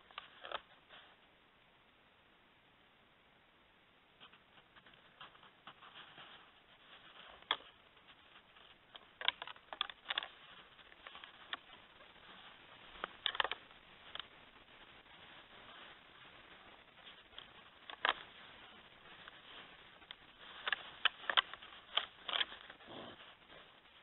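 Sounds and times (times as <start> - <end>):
antlers clicking and clacking: 15.0 - 23.3.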